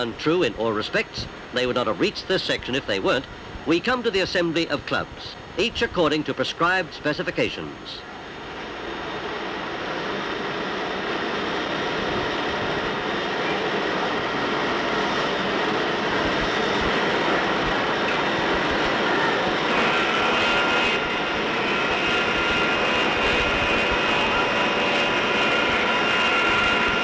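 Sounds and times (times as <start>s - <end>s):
high steady whine: 0.0s - 27.0s.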